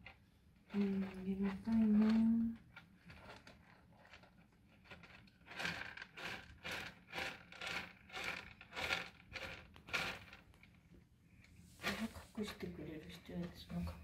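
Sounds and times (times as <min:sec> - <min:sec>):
kitten scratching pellet litter: 0:00.0 - 0:10.8.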